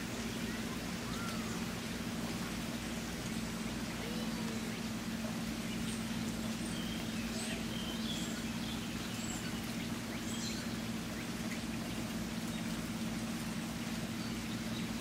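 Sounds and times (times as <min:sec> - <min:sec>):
flowing water rushing: 0:00.0 - 0:15.0
faint bird chirps: 0:00.1 - 0:01.7.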